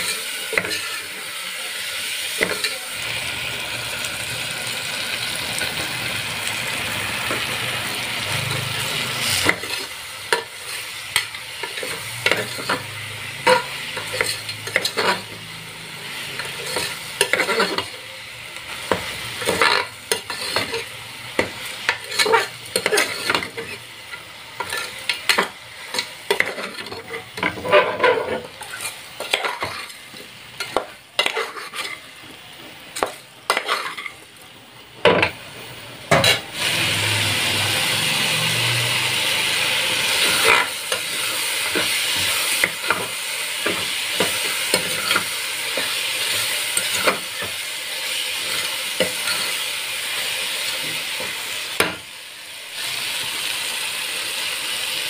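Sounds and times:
vegetables sizzling in oil: 0.0s - 55.0s
spoon scraping metal pot: 8.4s - 15.3s, 16.4s - 17.9s, 19.4s - 20.9s, 21.9s - 23.8s, 24.6s - 30.0s, 30.6s - 32.0s, 33.0s - 34.2s, 48.4s - 49.6s.

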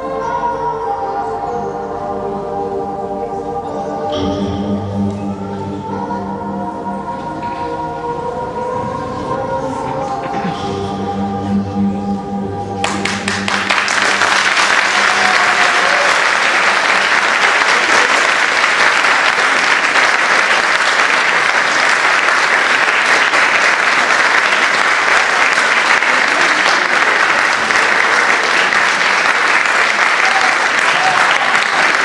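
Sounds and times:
audience applauding: 12.8s - 32.0s.

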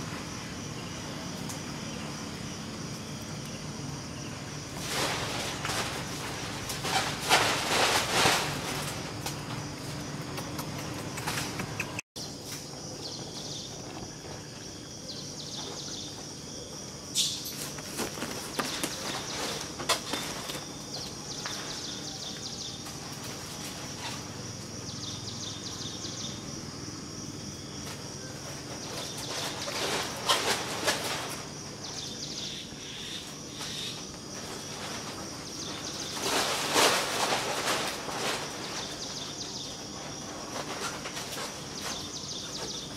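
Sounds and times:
high insect drone: 0.0s - 42.9s
rustles and knocks: 4.8s - 14.6s, 17.4s - 24.4s, 27.8s - 32.1s, 33.6s - 42.9s.

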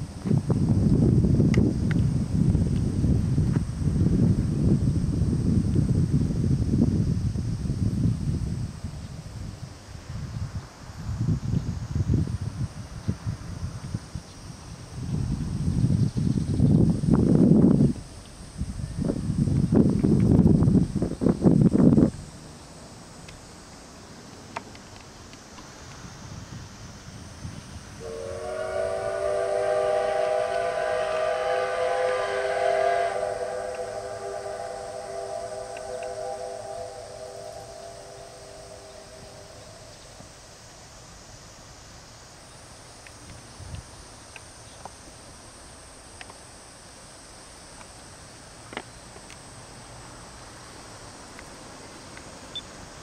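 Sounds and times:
high insect drone: 0.0s - 53.0s
low background hiss: 0.0s - 53.0s
steam locomotive whistle: 28.0s - 40.1s.

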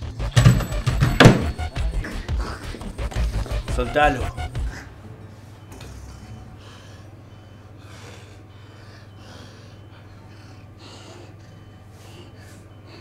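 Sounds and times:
low steady hum: 0.0s - 13.0s
man breathing hard: 2.0s - 3.6s, 4.6s - 5.0s, 5.9s - 13.0s.

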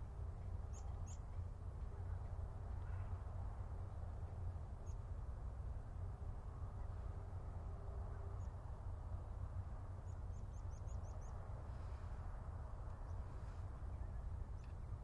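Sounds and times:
bird chirping: 0.7s - 1.3s, 10.0s - 11.4s.

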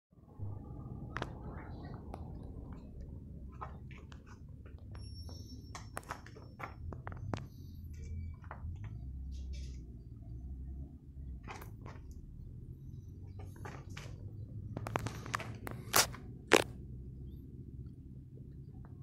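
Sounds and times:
low rumble: 0.2s - 19.0s
handling clicks and rustles: 1.1s - 9.9s, 13.3s - 16.8s.

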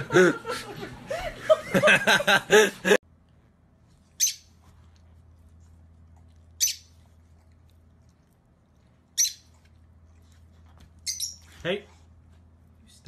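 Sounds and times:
woman laughing: 0.0s - 3.0s.

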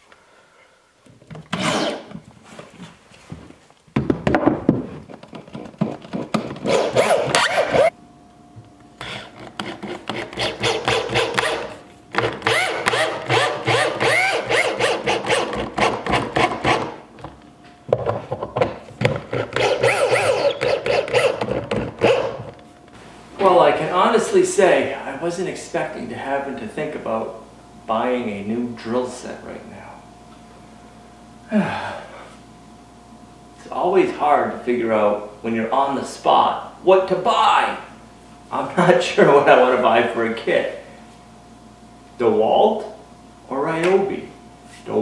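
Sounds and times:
screws rasping into wood: 5.5s - 7.9s, 9.0s - 16.9s, 19.3s - 22.4s
drill motor whirring: 6.6s - 7.9s, 9.0s - 16.9s, 19.4s - 22.4s.

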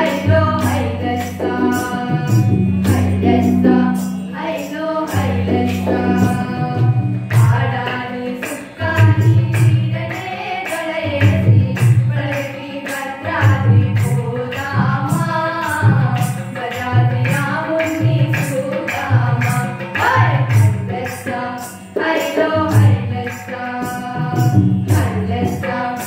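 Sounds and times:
group singing devotional song: 0.0s - 26.0s
tabla playing: 0.0s - 26.0s.

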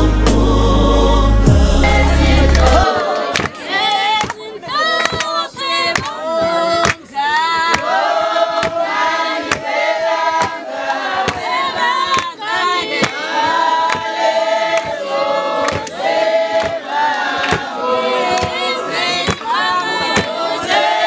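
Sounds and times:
group singing in chorus: 0.0s - 21.0s
sharp hand clap: 2.5s - 3.6s, 4.2s - 6.2s, 6.8s - 7.9s, 10.4s - 10.6s, 13.8s - 14.1s, 14.7s - 15.0s, 15.6s - 16.8s, 17.4s - 17.7s.

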